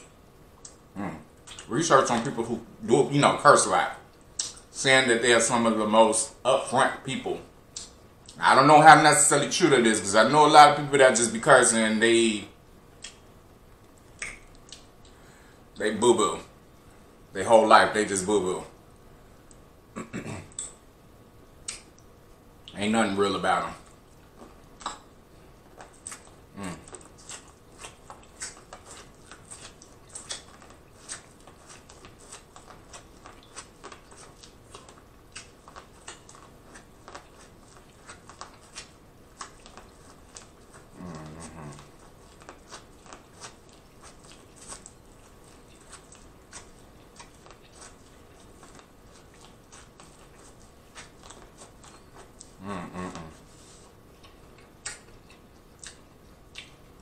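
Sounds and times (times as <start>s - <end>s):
person humming: 1.0s - 1.2s, 26.5s - 26.9s, 40.9s - 41.9s, 52.6s - 53.5s.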